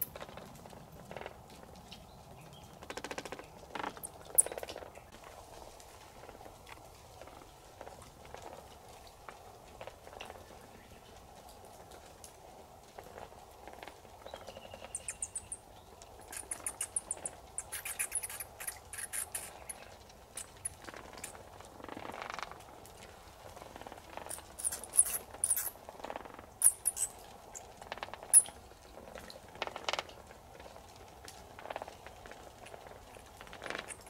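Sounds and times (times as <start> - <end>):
rustle: 0.0 - 34.0
bats squeaking: 14.6 - 15.6, 16.2 - 21.4, 24.3 - 25.8, 26.6 - 27.2.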